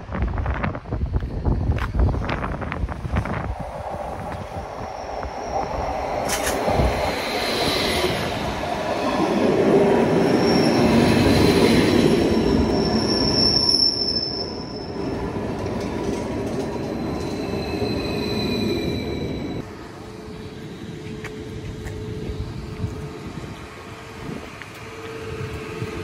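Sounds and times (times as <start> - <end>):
passenger train rolling past: 0.0 - 26.0
high wheel squeal: 4.4 - 15.3, 16.7 - 19.7.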